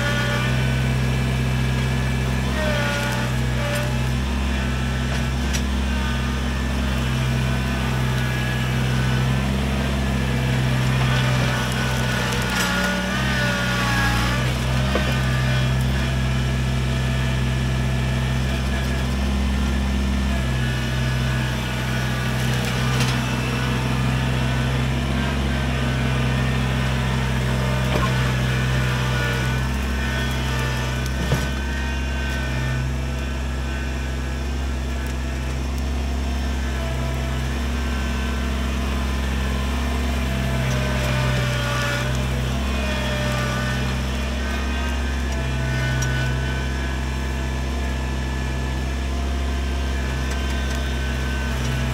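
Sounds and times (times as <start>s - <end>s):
tractor diesel engine running: 0.0s - 51.9s.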